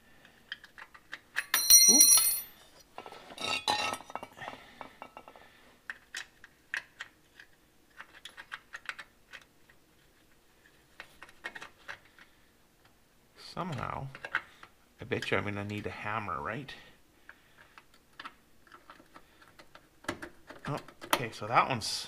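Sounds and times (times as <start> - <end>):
loud ringing metallic clink: 1.4 - 2.6.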